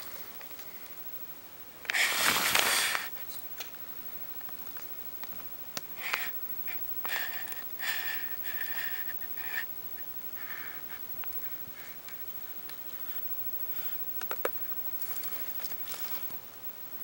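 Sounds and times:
loud rustle: 0:01.9 - 0:03.1
rat sniffing: 0:05.9 - 0:16.4.

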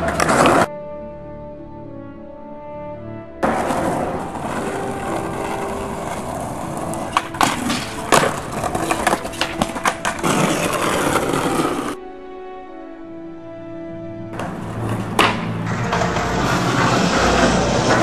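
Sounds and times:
skateboard clacks and knocks: 0:00.0 - 0:00.7, 0:03.4 - 0:12.0, 0:14.4 - 0:18.0
skateboard wheels rolling on concrete: 0:00.0 - 0:00.7, 0:03.4 - 0:12.0, 0:14.3 - 0:18.0.

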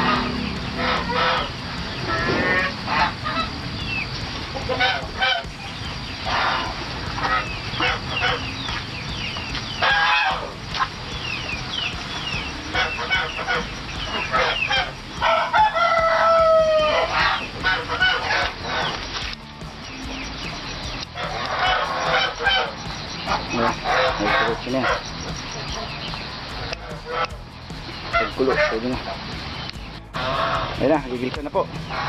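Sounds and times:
chickens clucking and squawking: 0:00.0 - 0:31.0, 0:31.7 - 0:32.0
rooster crowing: 0:14.2 - 0:18.5.

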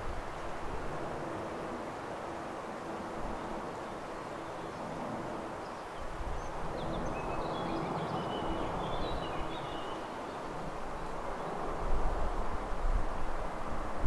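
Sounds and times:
low wind rumble: 0:00.0 - 0:14.0.

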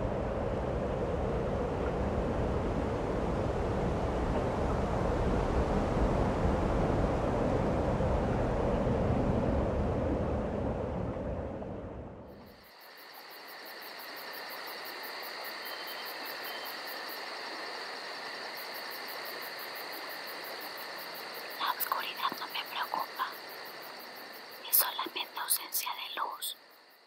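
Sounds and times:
low rumble: 0:00.0 - 0:12.3
insects chirring: 0:12.3 - 0:27.0
pulsing insect trill: 0:12.3 - 0:27.0
person whispering: 0:21.6 - 0:23.4, 0:24.6 - 0:26.6.

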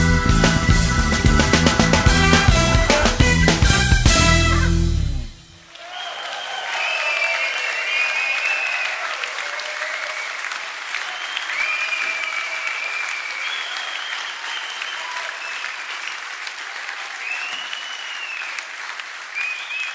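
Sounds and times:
live band final chord: 0:00.0 - 0:05.6
audience applause and cheering: 0:00.0 - 0:19.9.

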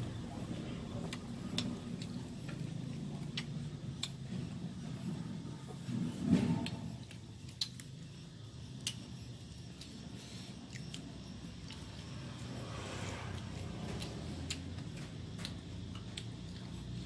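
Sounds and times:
low steady hum: 0:00.0 - 0:17.0
wet chewing clicks: 0:01.0 - 0:05.0, 0:06.6 - 0:10.0, 0:13.3 - 0:17.0.

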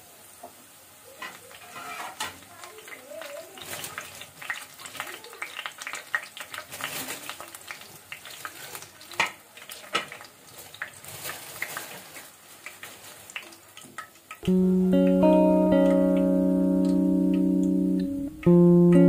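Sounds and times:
fritter sizzling in hot oil: 0:00.0 - 0:14.4
sharp clicks in frying oil: 0:00.4 - 0:14.5.

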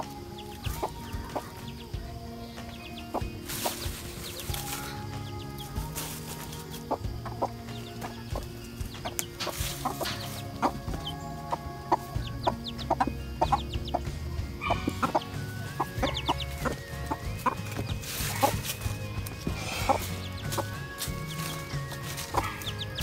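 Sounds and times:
background music: 0:00.0 - 0:23.0
hens clucking: 0:00.0 - 0:23.0
high chirps: 0:00.0 - 0:23.0.

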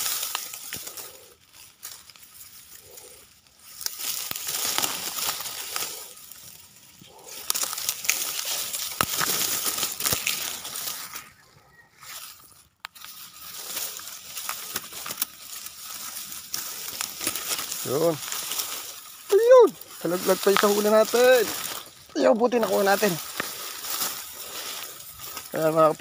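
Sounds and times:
dry reeds rustling and crackling: 0:00.0 - 0:26.0
sharp cracks: 0:07.2 - 0:11.2.

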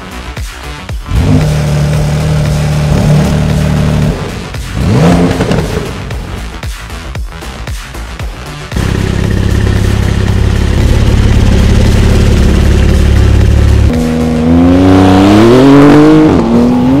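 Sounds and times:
car engine rumbling and accelerating: 0:01.0 - 0:17.0.

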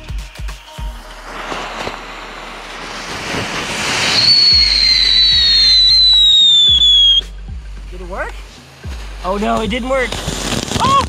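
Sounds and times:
firework spraying sparks hissing: 0:00.6 - 0:07.2, 0:08.5 - 0:11.0
firework whistle gliding down: 0:00.7 - 0:07.3.

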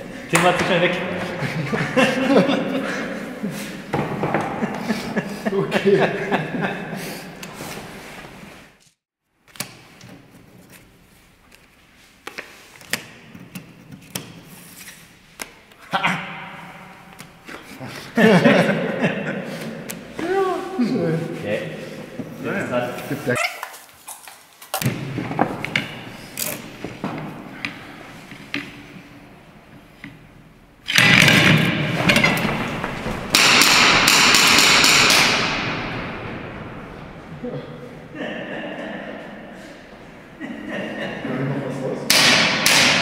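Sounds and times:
loud dense noise: 0:31.0 - 0:42.5.

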